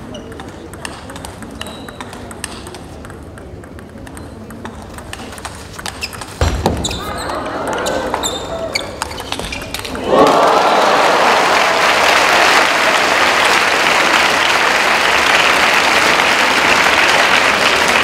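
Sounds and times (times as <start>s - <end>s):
ping pong ball ticking: 0.0s - 6.4s
crowd voices: 6.5s - 18.0s
applause: 10.1s - 18.0s.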